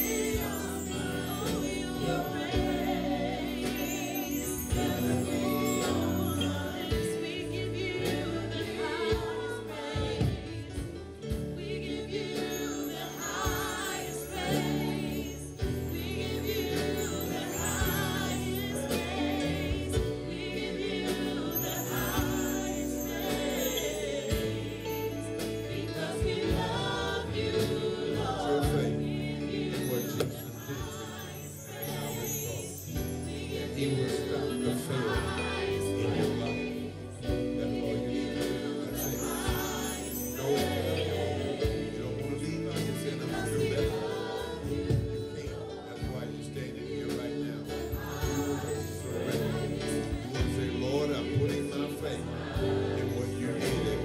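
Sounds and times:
drums: 0.0 - 54.0
keyboard: 0.0 - 54.0
singers: 0.0 - 54.0
bass guitar: 33.0 - 54.0.

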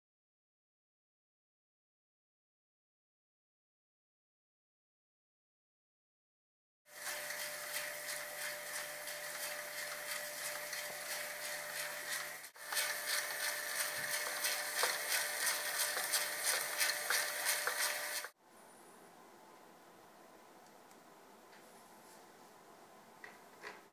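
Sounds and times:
steady machine hum: 6.9 - 23.2.

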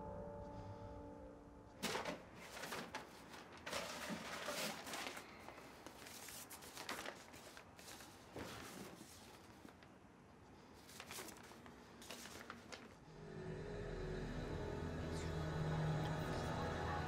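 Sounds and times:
rustling paper: 1.8 - 10.0, 10.6 - 13.0.

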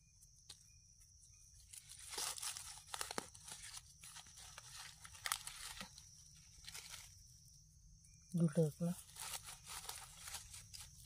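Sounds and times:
dry leaves rustling and crackling: 1.6 - 7.2, 8.6 - 11.0.

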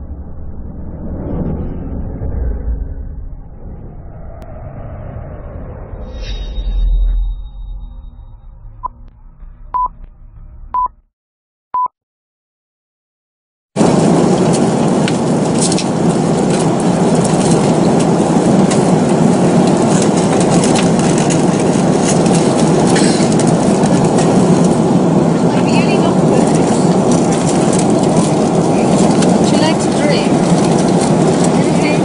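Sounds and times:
short beeps: 9.7 - 10.0, 10.7 - 11.0
jet airliner cabin noise: 13.8 - 32.0.

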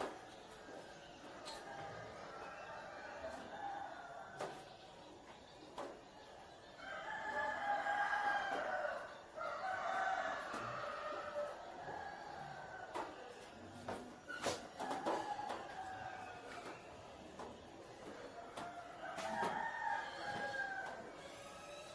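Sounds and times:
rooster crowing: 6.8 - 13.2, 18.4 - 21.9.

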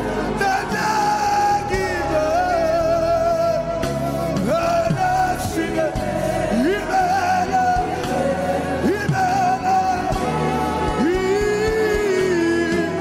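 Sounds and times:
gospel band playing: 0.0 - 13.0.

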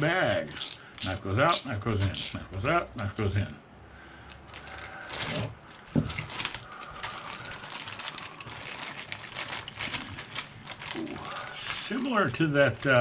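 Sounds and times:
plastic bag crinkling: 4.3 - 13.0.

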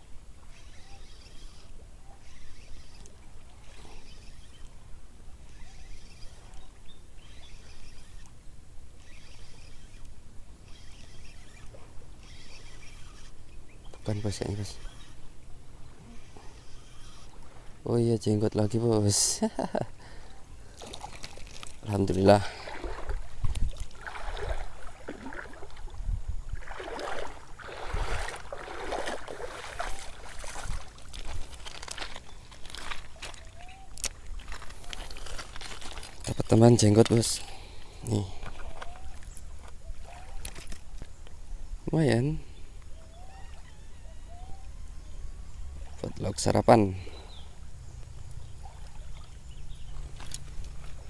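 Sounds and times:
fishing reel gear whirr: 0.4 - 25.9, 26.7 - 41.5, 42.2 - 46.5
wind buffeting microphone: 22.5 - 31.5
waves lapping on pebble shore: 26.7 - 33.4.

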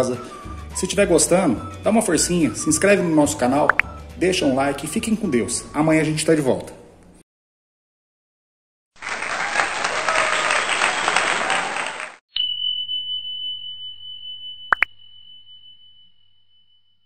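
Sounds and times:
applause: 9.0 - 12.2
high bell ding: 12.3 - 17.0.

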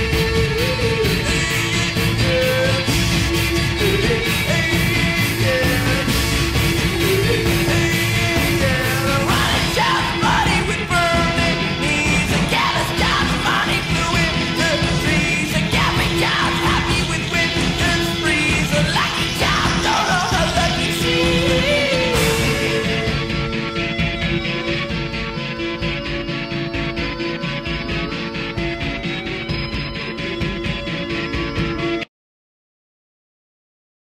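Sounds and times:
person yelling and singing: 0.0 - 23.4
rock band playing: 0.0 - 32.1.

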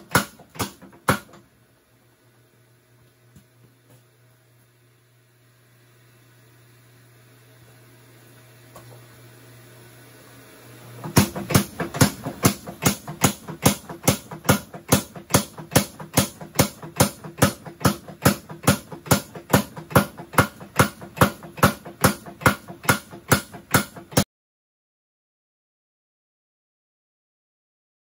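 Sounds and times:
power hammer pounding steel: 0.0 - 1.4, 11.0 - 24.2.

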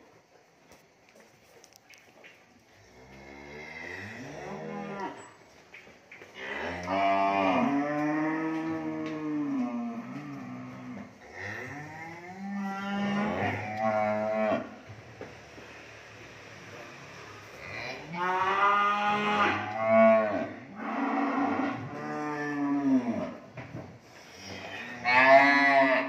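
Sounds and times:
cattle mooing: 6.4 - 14.8, 17.3 - 23.4, 24.4 - 26.0.

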